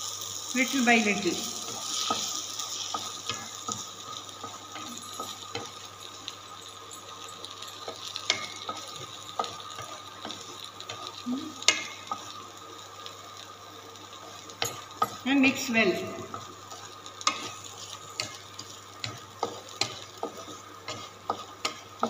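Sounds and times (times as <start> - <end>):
low sizzle: 0.0 - 22.0
wooden spatula scraping a pan: 16.3 - 22.0.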